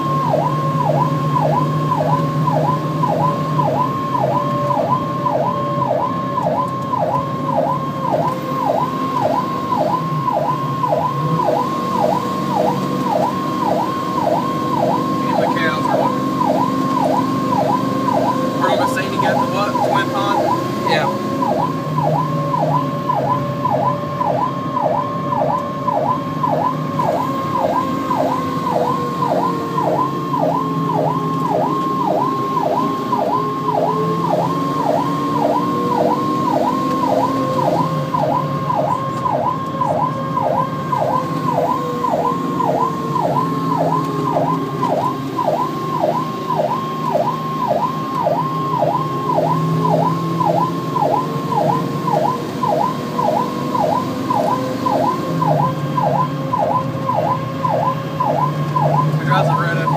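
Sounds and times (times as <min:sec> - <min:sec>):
fast sweeping emergency siren: 0:00.0 - 0:59.9
slower rising and falling siren: 0:00.0 - 0:59.9
vehicle engine and road noise: 0:00.0 - 0:59.9.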